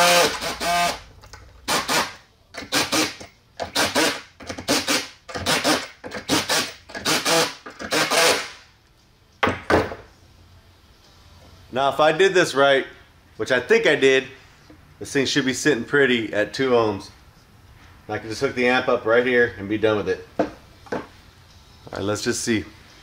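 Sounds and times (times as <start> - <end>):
cordless drill short bursts: 0.0 - 1.0, 1.7 - 8.6.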